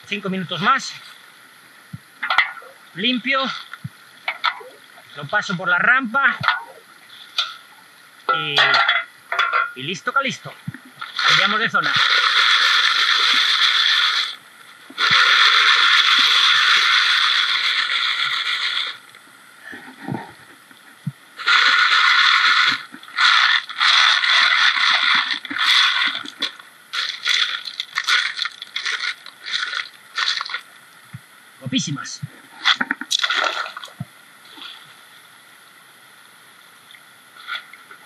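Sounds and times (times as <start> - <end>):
gravel rattling and scraping: 19.8 - 30.7.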